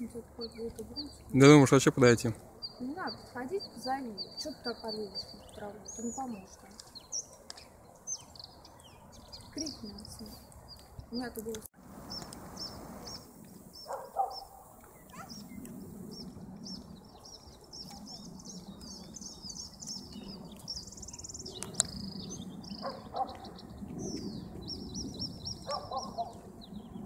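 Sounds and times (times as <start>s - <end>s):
small birds chirping: 0.0s - 27.0s
short low bird calls: 12.1s - 26.5s.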